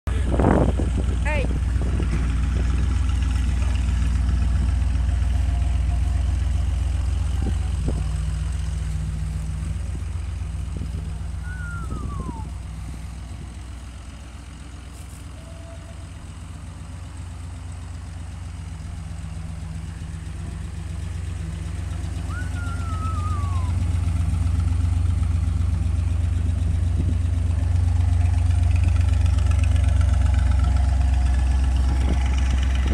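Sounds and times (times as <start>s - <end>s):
car engine idling: 0.1s - 32.9s
short falling whistles: 11.4s - 12.6s, 22.3s - 23.8s.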